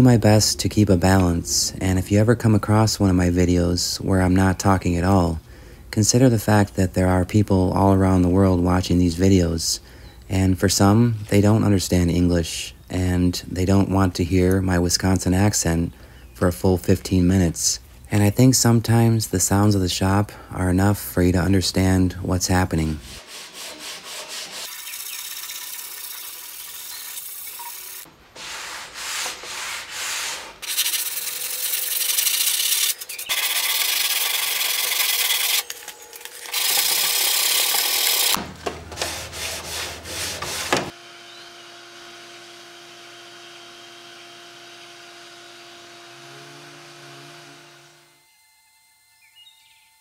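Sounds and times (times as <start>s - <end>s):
steady hum: 0.0s - 3.7s, 34.8s - 49.3s
sandpaper sanding wood: 22.8s - 25.0s, 28.4s - 35.6s, 38.9s - 41.0s.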